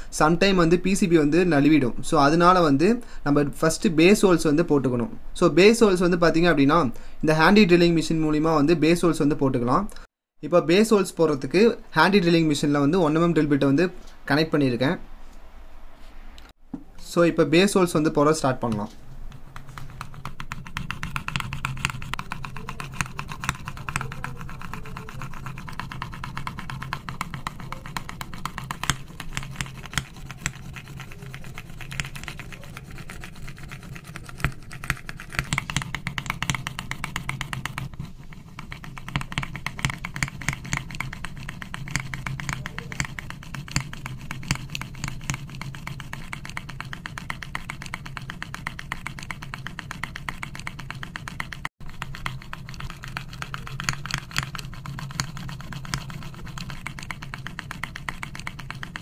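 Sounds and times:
steady low hum: 11.8 - 59.0
drill bit scraping circuit board: 19.7 - 59.0.

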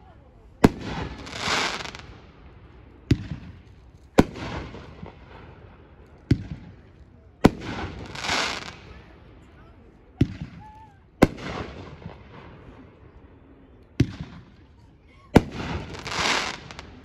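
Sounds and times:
fireworks crackling hiss: 0.6 - 2.1, 7.4 - 9.0, 15.4 - 17.0
fireworks shots: 0.6 - 9.0, 10.2 - 12.9, 14.0 - 14.6, 15.4 - 17.0.

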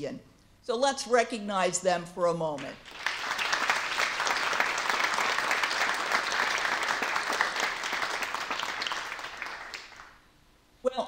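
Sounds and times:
audience applauding: 2.8 - 10.2.

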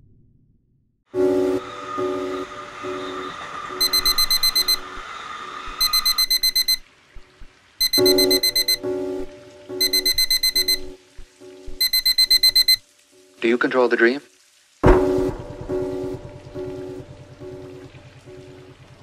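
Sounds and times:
alarm clock beeping: 3.8 - 5.0, 5.8 - 6.8, 7.8 - 8.9, 9.8 - 11.0, 11.7 - 12.8.

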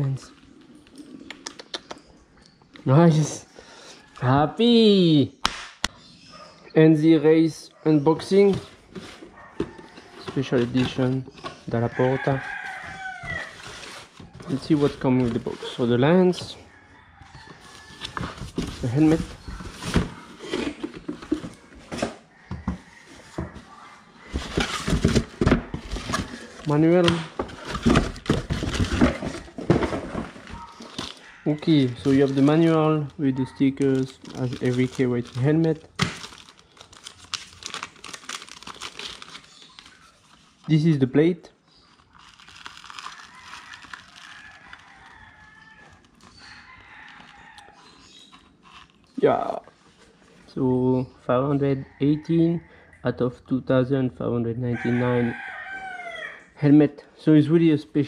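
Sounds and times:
rooster crowing: 9.4 - 10.2, 11.8 - 14.0, 16.5 - 18.4, 22.0 - 24.9, 30.2 - 33.9, 43.0 - 47.9, 54.7 - 56.5
cardboard box scrapes and knocks: 27.4 - 31.1.

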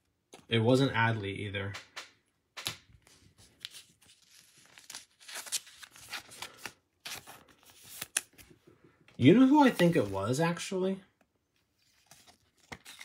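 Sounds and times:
cards rustling against plastic: 2.6 - 8.6, 9.2 - 10.6, 11.8 - 13.0.

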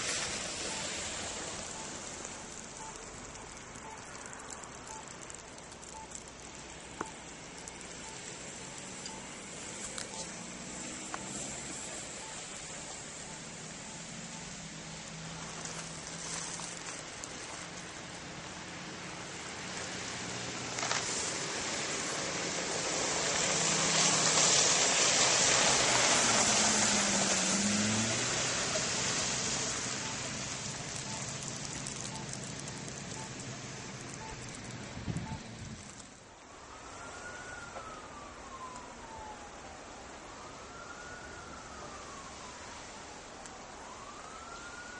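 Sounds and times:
truck driving past on slush: 0.0 - 5.3, 18.7 - 35.8.

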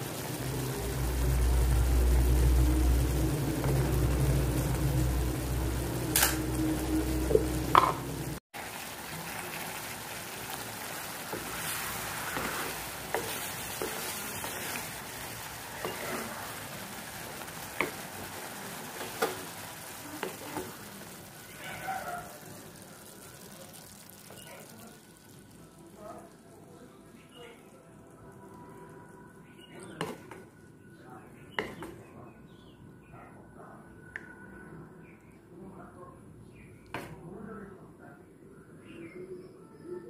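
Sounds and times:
quiet frying sizzle: 0.0 - 30.6
loud low hum: 0.4 - 8.4
wooden spatula scraping a wok: 10.4 - 21.4.

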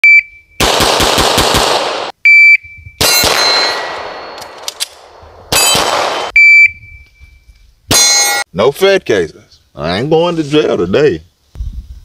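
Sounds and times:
rapid gunfire: 0.6 - 2.1, 5.7 - 6.3
short high beep: 2.3 - 3.8, 6.4 - 8.4
sharp blast ringing: 3.0 - 4.6, 5.5 - 6.4, 7.9 - 8.4.

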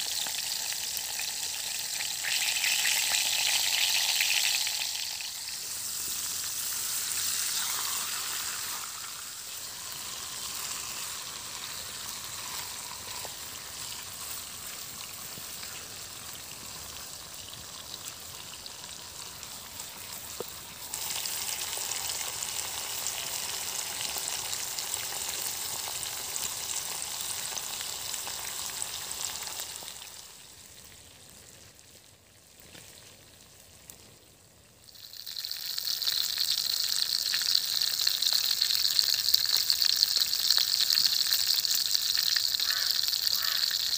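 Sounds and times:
chicken sizzling in a pan: 0.0 - 43.9.

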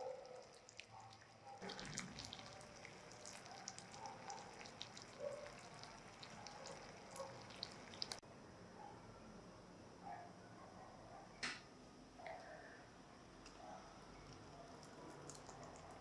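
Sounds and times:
syrup bubbles popping: 1.6 - 8.2, 14.3 - 16.0.

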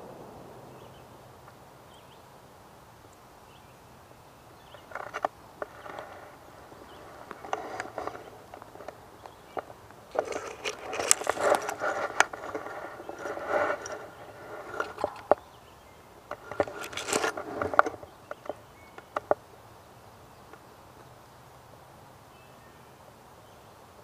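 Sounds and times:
dry leaves crackling: 0.0 - 19.6
branches scraping and snapping: 4.8 - 15.6, 16.2 - 19.4.

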